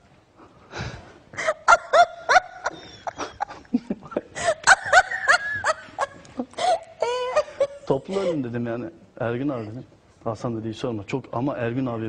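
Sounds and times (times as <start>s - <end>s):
woman laughing: 1.4s - 8.3s.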